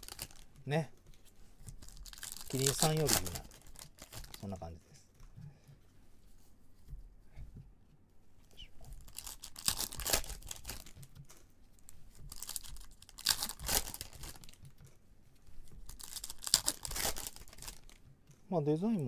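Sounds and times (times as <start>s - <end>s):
foil wrapper crinkling and tearing: 0.0s - 0.6s, 1.8s - 4.6s, 8.8s - 14.8s, 15.6s - 18.0s.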